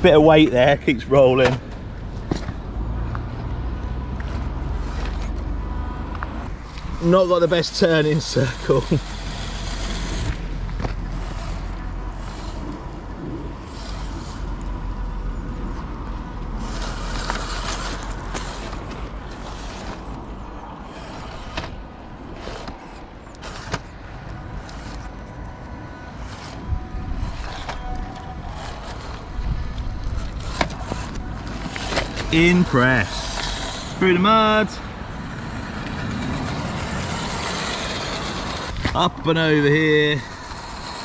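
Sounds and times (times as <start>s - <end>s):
electric motor whining: 1.8s - 41.0s
tyres crunching on stones: 28.5s - 34.7s.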